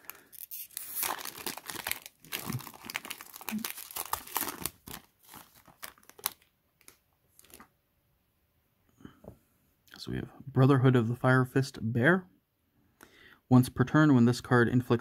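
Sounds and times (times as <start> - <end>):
foil wrapper crinkling and tearing: 0.0 - 7.7.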